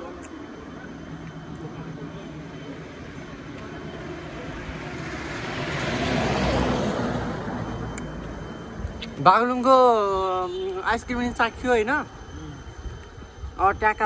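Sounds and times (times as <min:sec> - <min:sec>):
vehicle passing by: 0:04.3 - 0:09.2.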